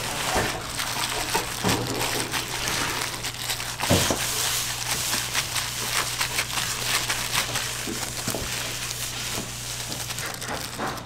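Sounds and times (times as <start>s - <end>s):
gloved hands squishing soft food: 0.0s - 11.0s
plastic gloves crinkling: 0.0s - 11.0s.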